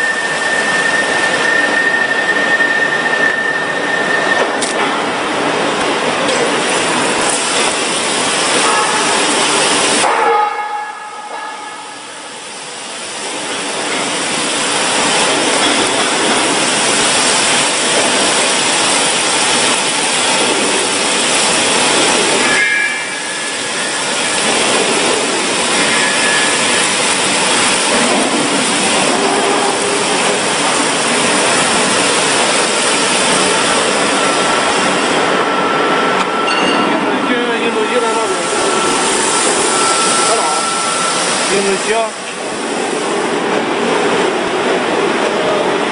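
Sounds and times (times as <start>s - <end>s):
water spraying on hot steel hissing: 6.4s - 10.0s, 11.8s - 35.2s, 37.8s - 43.4s.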